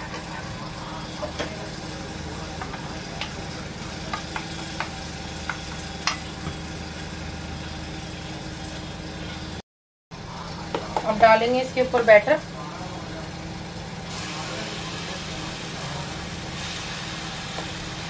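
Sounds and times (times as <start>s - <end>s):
pancake sizzling in a pan: 12.6s - 18.0s.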